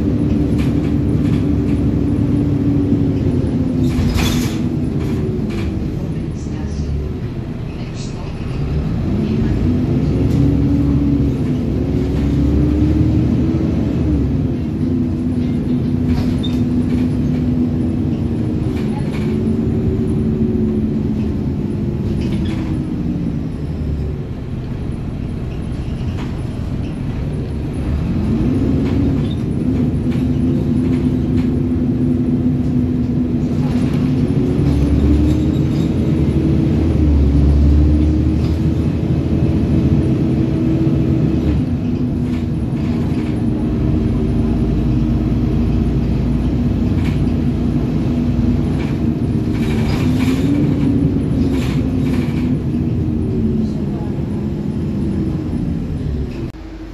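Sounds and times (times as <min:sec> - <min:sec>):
light rattles and knocks: 0:00.0 - 0:06.2, 0:13.8 - 0:23.2, 0:24.6 - 0:54.9
bus engine drone: 0:00.0 - 0:56.9
low road rumble: 0:00.0 - 0:56.9.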